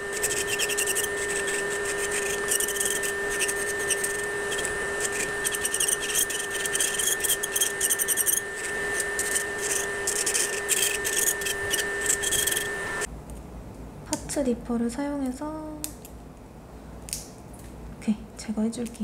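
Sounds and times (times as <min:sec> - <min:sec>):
drill bit grinding nail gel: 0:00.0 - 0:13.1
electric nail drill whining: 0:00.0 - 0:13.1.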